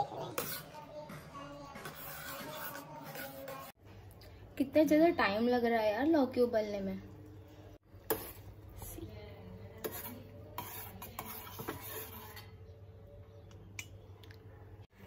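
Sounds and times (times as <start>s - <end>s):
metal spoon scraping pot: 0.0s - 0.8s, 1.8s - 3.8s, 9.8s - 12.7s.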